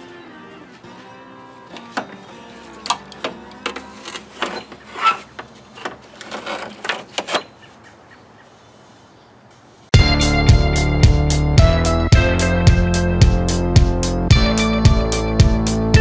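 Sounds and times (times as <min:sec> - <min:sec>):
faint background noise: 0:00.0 - 0:09.9
car parts knocking and clattering: 0:02.8 - 0:07.6.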